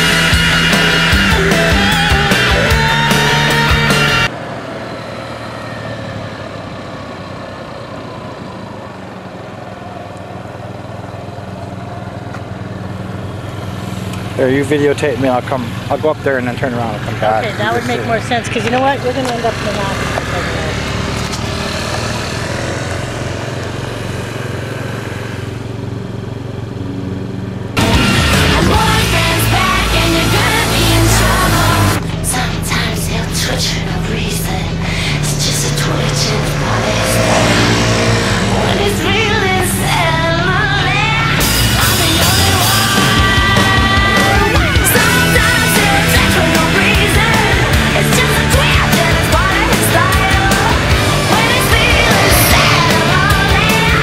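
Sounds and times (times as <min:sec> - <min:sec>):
background music: 0:00.0 - 0:04.3, 0:27.8 - 0:54.0
scooter engine idling: 0:05.2 - 0:54.0.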